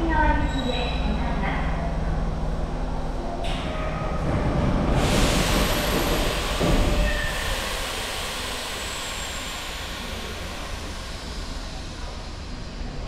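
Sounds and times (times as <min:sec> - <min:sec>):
subway train rumbling on rails: 0:00.0 - 0:13.0.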